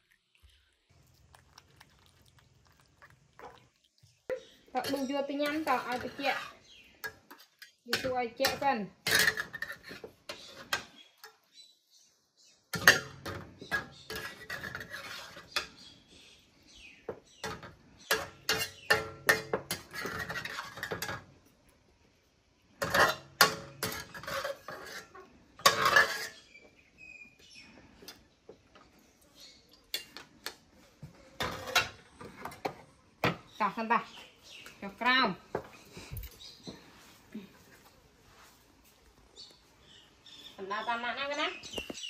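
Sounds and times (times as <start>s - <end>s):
metal spatula scraping a wok: 4.8s - 11.4s, 12.8s - 15.8s, 17.4s - 21.2s, 22.8s - 26.5s, 31.4s - 32.6s.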